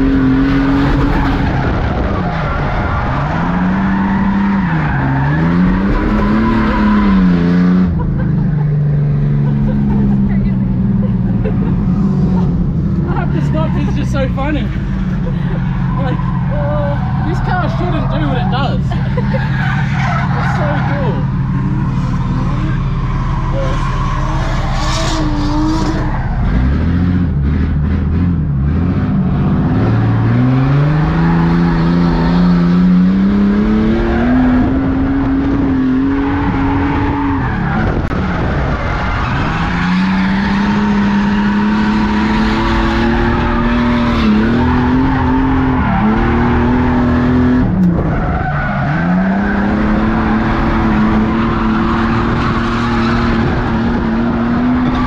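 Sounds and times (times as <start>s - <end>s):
car engine revving hard: 0.0s - 55.0s
tyres skidding: 0.0s - 55.0s.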